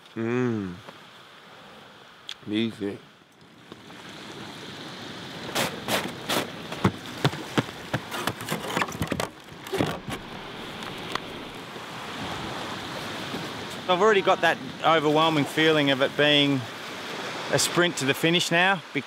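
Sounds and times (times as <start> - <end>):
surf washing: 0.5 - 19.0
kayak gear clicking and knocking: 5.6 - 11.6.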